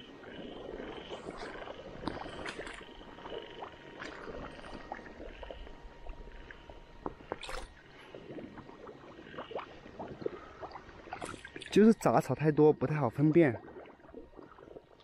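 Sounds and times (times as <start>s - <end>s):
frogs calling: 0.0s - 15.0s
person wading through water: 0.2s - 12.0s, 13.2s - 15.0s.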